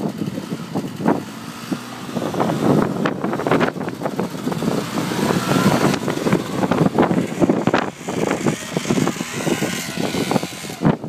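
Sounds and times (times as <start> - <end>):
atv engine running: 0.0 - 11.0
wind buffeting microphone: 0.0 - 11.0.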